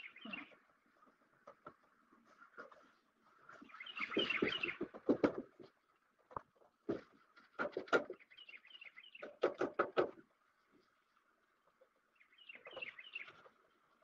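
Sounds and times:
small birds chirping: 0.0 - 1.7, 2.3 - 6.1, 7.8 - 9.9, 11.6 - 14.0.

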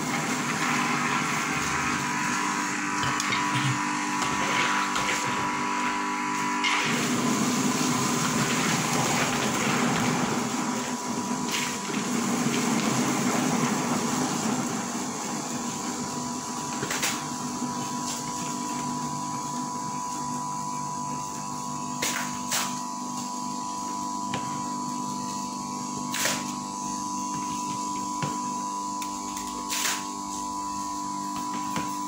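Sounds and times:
electric grinder running: 0.0 - 21.9.

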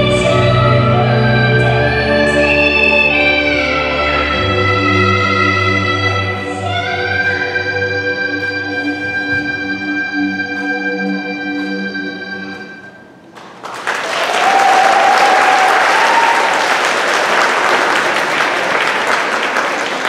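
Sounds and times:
orchestral dance music: 0.0 - 13.2
audience applause: 13.3 - 20.0
audience cheer: 13.8 - 20.0.

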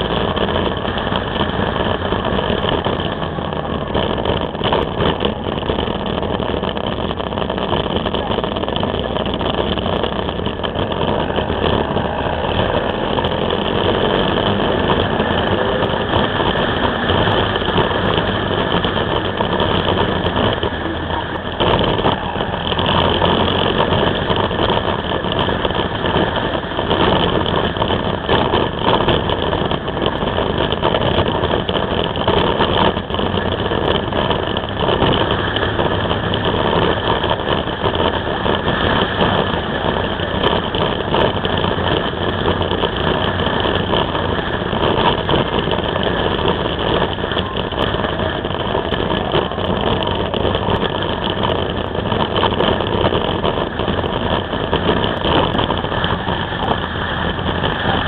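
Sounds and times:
engine running: 0.0 - 58.0
road noise: 0.0 - 58.0
wind noise on microphone: 0.0 - 58.0.

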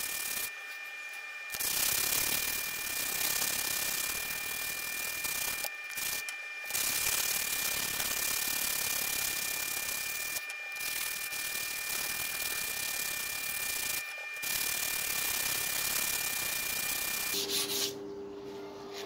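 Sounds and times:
faint high-pitched tone: 17.3 - 19.0.

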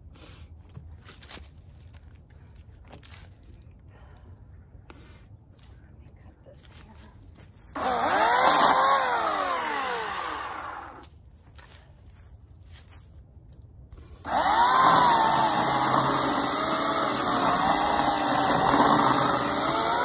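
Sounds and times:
chainsaw cutting log: 7.7 - 11.1, 14.2 - 20.0
electric chainsaw motor whirring: 7.8 - 11.0, 14.2 - 20.0.

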